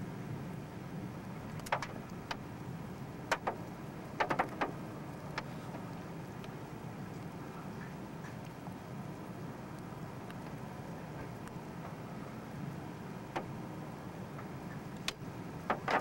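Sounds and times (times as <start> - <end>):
steady low rumble: 0.0 - 16.0
sharp clicks and knocks: 1.5 - 2.4, 3.3 - 5.8, 13.3 - 13.5, 14.3 - 16.0.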